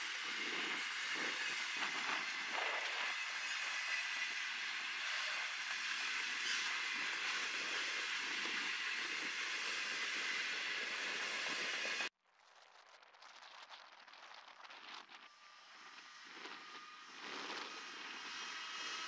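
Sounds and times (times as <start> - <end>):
freight train wagons rolling past: 0.0 - 12.1.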